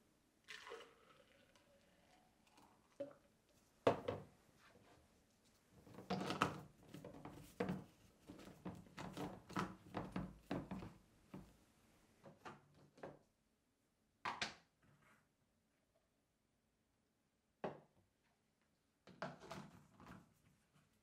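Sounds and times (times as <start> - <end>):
plastic knocking on counter: 3.9 - 4.3.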